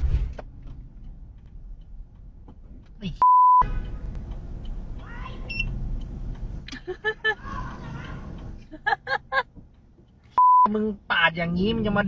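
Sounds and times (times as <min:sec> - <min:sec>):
steady low rumble: 0:00.0 - 0:12.0
censor bleep: 0:03.2 - 0:03.7, 0:10.4 - 0:10.7
people shouting in argument: 0:07.4 - 0:08.3.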